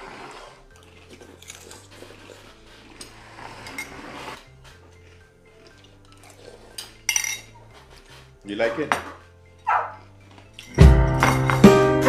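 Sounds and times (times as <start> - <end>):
spoons clinking against bowls: 5.6 - 8.2.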